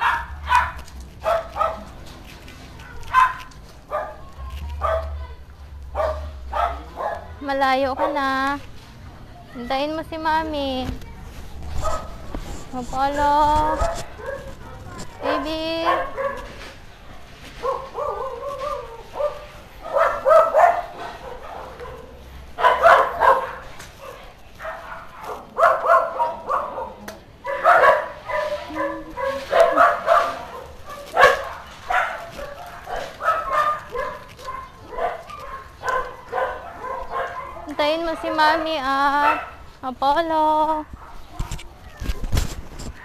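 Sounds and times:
dog barking: 0:00.0 - 0:02.0, 0:02.8 - 0:05.3, 0:05.9 - 0:08.4, 0:11.8 - 0:12.2, 0:13.6 - 0:16.6, 0:17.6 - 0:39.7, 0:40.8 - 0:41.6.

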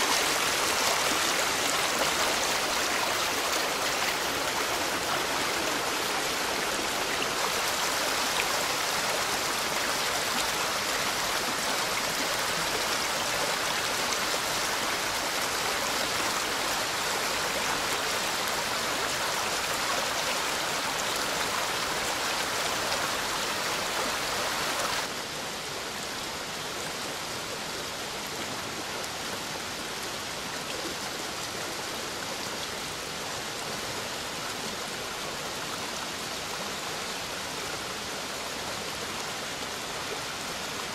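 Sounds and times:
torrent rushing water: 0:00.0 - 0:40.9.

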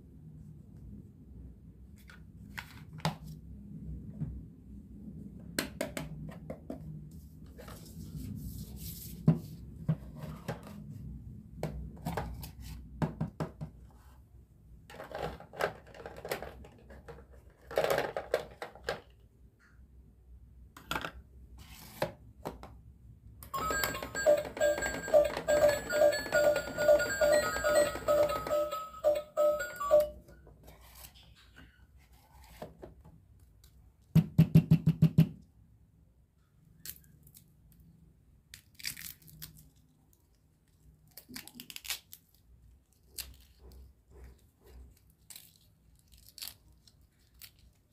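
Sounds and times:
plastic toys clicking and knocking: 0:14.9 - 0:19.2, 0:23.6 - 0:30.1
toy electronic beeping tune: 0:23.5 - 0:30.3.

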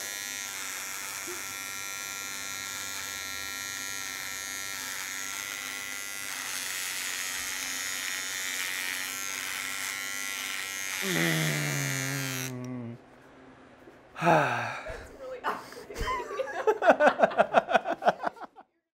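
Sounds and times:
electric trimmer buzzing: 0:00.0 - 0:13.0.

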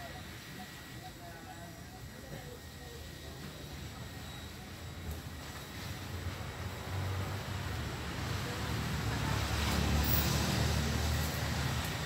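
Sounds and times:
road traffic rumble: 0:00.0 - 0:12.0
vehicle passing: 0:06.8 - 0:12.0.

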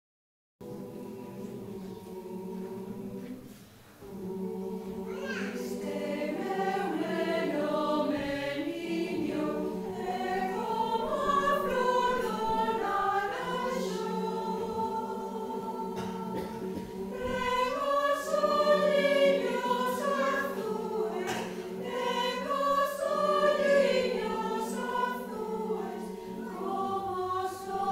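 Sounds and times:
mixed choir singing a lullaby: 0:00.6 - 0:27.9.

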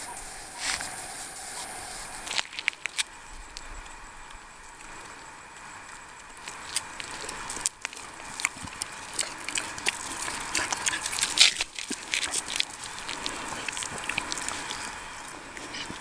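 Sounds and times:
pig crunching on gravel: 0:00.4 - 0:03.1, 0:06.4 - 0:16.0.

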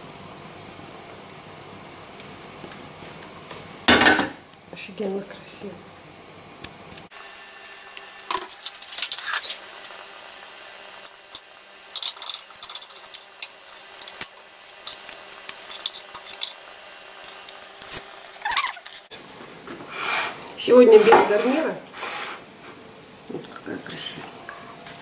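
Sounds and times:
utensils clinking on plates: 0:11.4 - 0:16.6.

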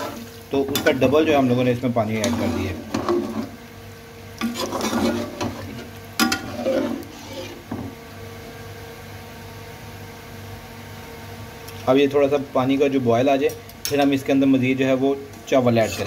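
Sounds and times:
steady low hum: 0:00.0 - 0:16.0
spoon scraping and knocking pot: 0:02.2 - 0:03.6, 0:04.4 - 0:07.9.

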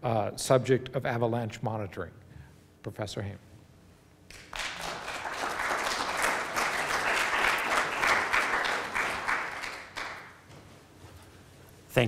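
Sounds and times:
audience applauding: 0:04.3 - 0:10.4.

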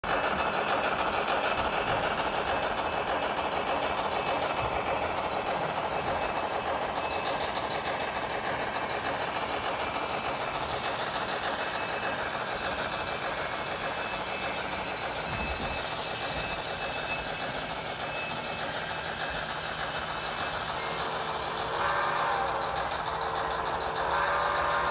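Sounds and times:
model train rumbling: 0:00.0 - 0:24.9.

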